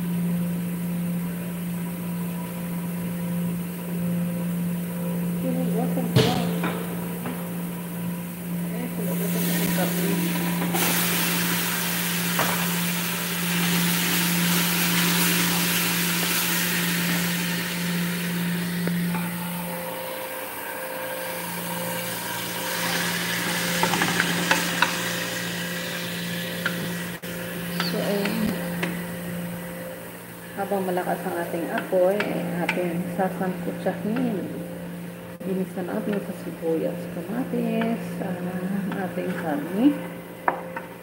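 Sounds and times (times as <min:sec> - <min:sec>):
low hum: 0:00.0 - 0:41.0
meat sizzling in a pot: 0:09.1 - 0:19.1, 0:21.2 - 0:30.1.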